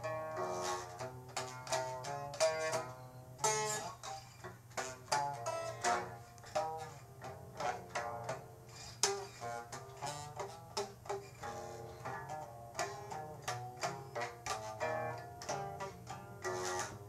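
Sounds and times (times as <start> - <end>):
plucked string instrument notes: 0.0 - 17.0.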